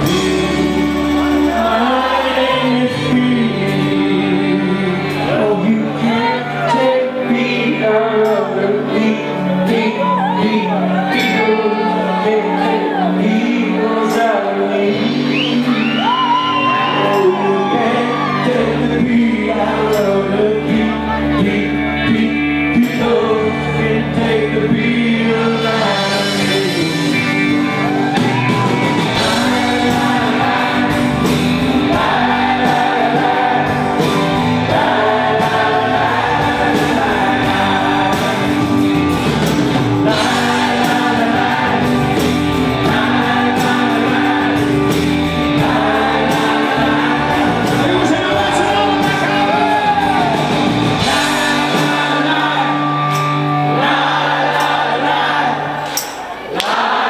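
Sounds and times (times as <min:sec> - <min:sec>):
bass guitar: 0:00.0 - 0:57.0
drums: 0:00.0 - 0:57.0
keyboards: 0:00.0 - 0:57.0
men singing: 0:00.0 - 0:57.0.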